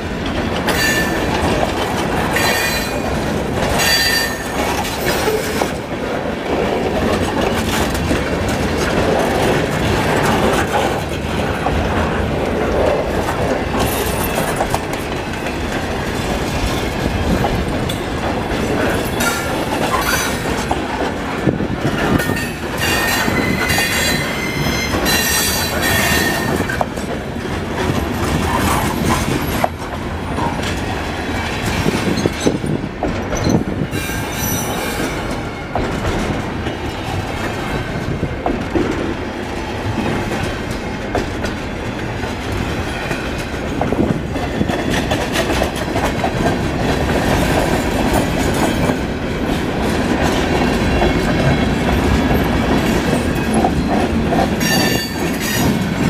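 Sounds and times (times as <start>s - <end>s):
train wheels clattering over rail: 0.0s - 56.0s
high-pitched wheel squeals: 22.8s - 26.8s.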